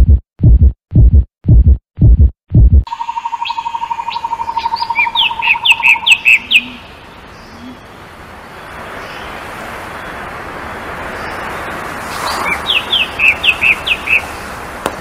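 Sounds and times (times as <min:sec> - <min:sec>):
songbirds trilling and chirping: 0:02.9 - 0:14.6
outdoor hiss: 0:05.4 - 0:15.0.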